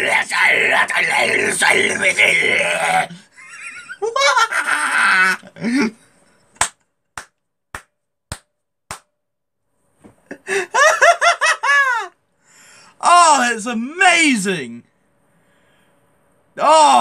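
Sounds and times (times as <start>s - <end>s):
man laughing high-pitched: 3.1s - 6.0s, 10.3s - 12.2s
sharp smacks: 6.6s - 9.1s.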